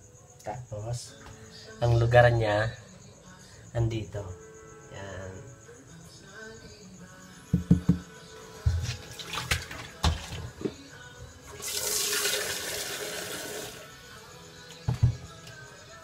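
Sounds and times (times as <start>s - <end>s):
knocks at kitchen sink: 7.5s - 8.1s, 14.9s - 15.2s
tap water running into pitcher: 8.8s - 10.4s, 11.5s - 13.8s.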